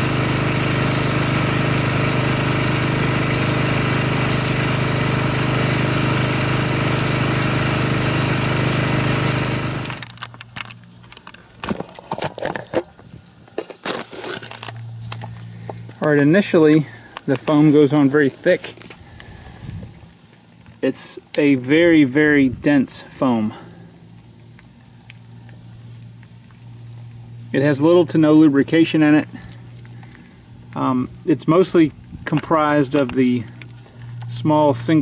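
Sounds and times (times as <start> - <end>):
pressure washer spraying foam: 0.0 - 10.1.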